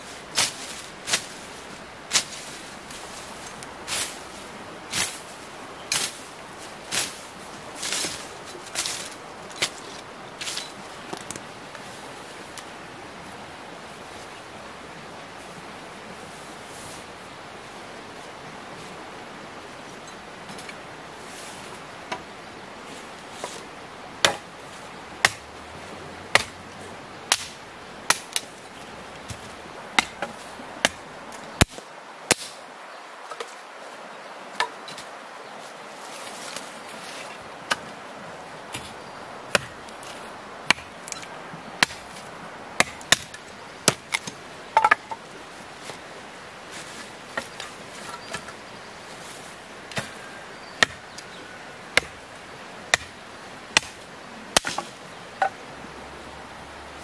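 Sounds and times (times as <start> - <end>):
steady background hiss: 0.0 - 57.0
machete chopping wooden branch: 24.2 - 24.5, 26.4 - 26.6, 27.3 - 28.5, 53.8 - 54.0, 54.6 - 55.0.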